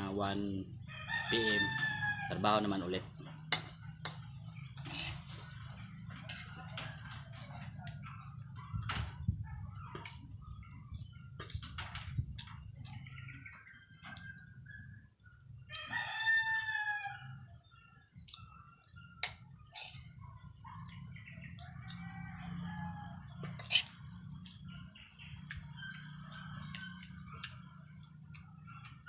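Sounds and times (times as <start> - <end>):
rooster crowing: 0.9 - 2.7, 15.7 - 17.4, 21.7 - 23.5
chicken calls: 0.9 - 3.3.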